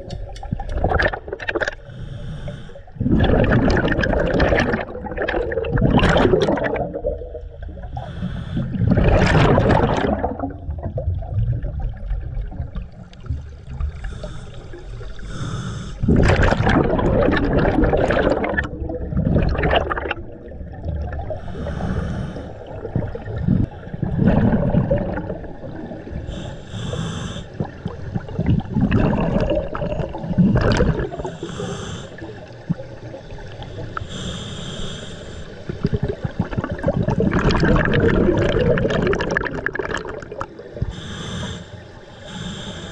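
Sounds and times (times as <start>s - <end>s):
exhaled bubbles underwater: 0.0s - 42.9s
regulator hissing inhalations: 1.8s - 3.0s, 7.9s - 8.8s, 13.9s - 16.1s, 21.4s - 22.7s, 26.3s - 27.6s, 31.2s - 32.4s, 33.7s - 35.8s, 40.8s - 42.9s.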